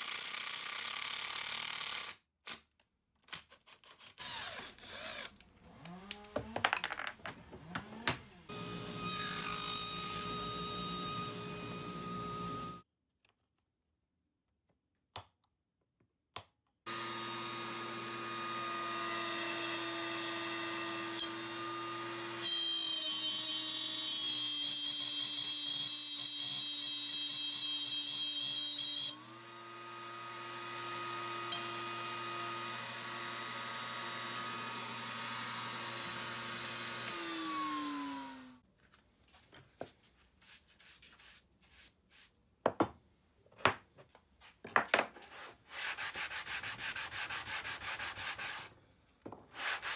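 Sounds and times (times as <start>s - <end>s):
power tool motor running: 16.9s - 19.8s, 29.1s - 38.6s.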